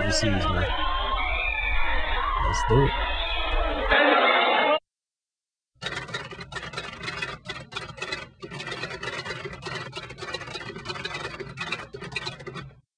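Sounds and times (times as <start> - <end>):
rapid keyboard typing clicks: 5.8 - 12.8.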